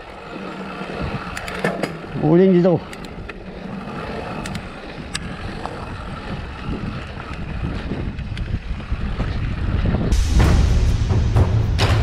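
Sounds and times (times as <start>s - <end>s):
bike tyres rolling on dirt: 0.0s - 10.2s
wind buffeting microphone: 0.0s - 12.0s
rattle clicks: 4.3s - 5.8s.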